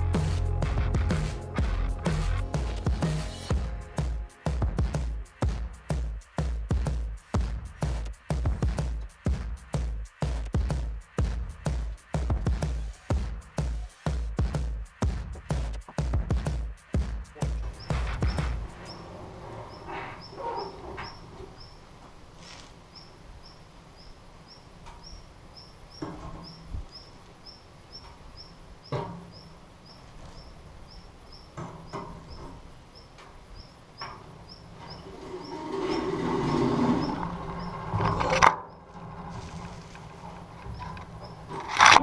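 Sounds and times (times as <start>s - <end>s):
metal scrape: 17.7s - 21.7s, 34.5s - 42.0s.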